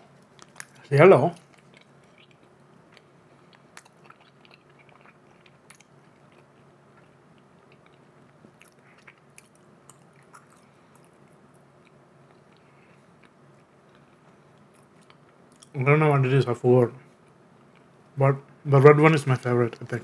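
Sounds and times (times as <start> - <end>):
faint low hum: 0.0 - 20.0
close-up chewing: 0.2 - 15.8.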